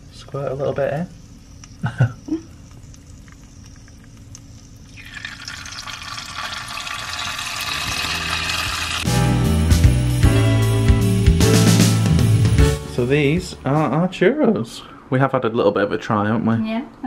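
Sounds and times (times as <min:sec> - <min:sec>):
dough frying in sizzling oil: 0:02.6 - 0:09.2
background music: 0:07.6 - 0:14.2.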